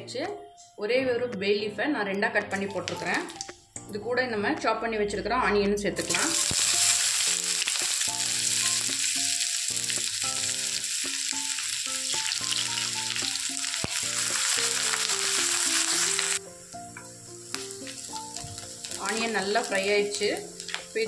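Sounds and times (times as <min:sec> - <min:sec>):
soft background music: 0:00.0 - 0:21.0
onions sizzling in oil: 0:06.0 - 0:21.0.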